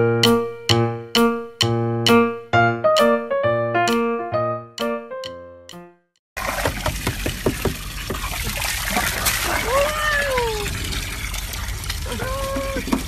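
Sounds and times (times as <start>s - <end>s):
water sloshing and splashing: 6.4s - 13.0s.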